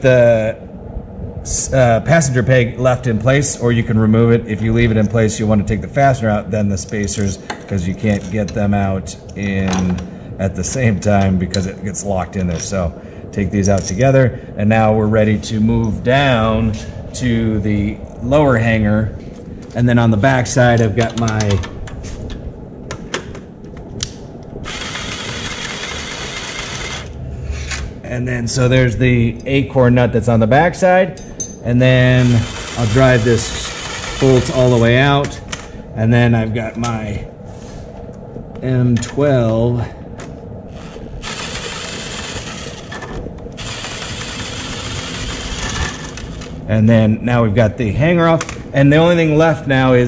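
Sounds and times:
cordless driver running: 24.6 - 27.2, 32.1 - 34.9, 40.7 - 46.6.

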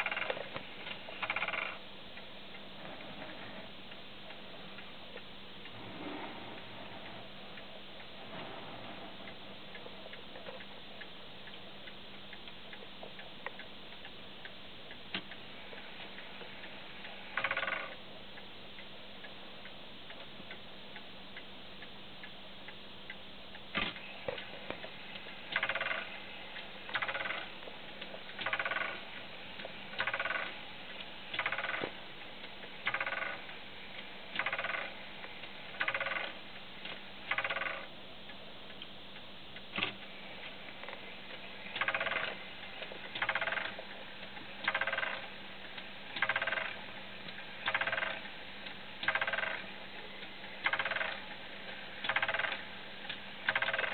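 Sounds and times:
clock mechanism click: 3.3 - 18.0, 23.1 - 37.9, 39.7 - 40.1, 41.7 - 53.9.

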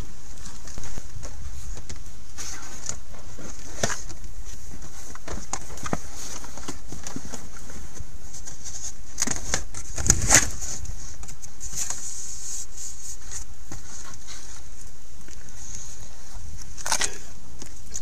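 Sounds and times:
steady high hiss: 0.0 - 18.0
rubber mat rustling and clicks: 0.3 - 12.1.

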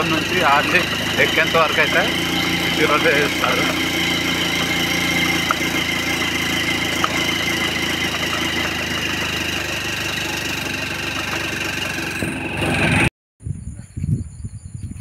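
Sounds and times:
motorcycle engine running: 0.0 - 13.1.

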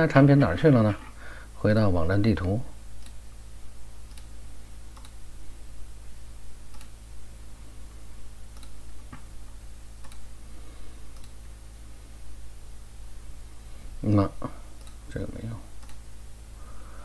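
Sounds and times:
steady low hum: 0.0 - 17.0
computer mouse clicks: 3.0 - 3.2, 4.0 - 4.3, 4.9 - 5.2, 6.7 - 7.0, 8.5 - 9.3, 10.0 - 10.3, 11.1 - 11.4, 14.8 - 15.0, 15.8 - 16.0.

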